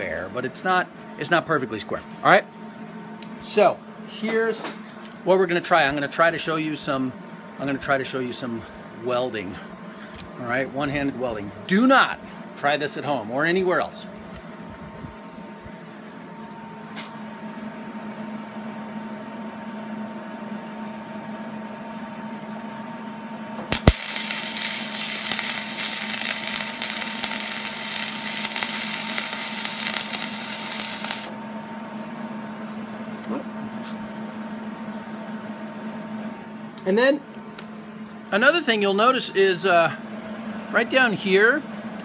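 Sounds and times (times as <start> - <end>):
steady hum: 0.0 - 42.0
welder arc crackling and sizzling: 23.6 - 31.4.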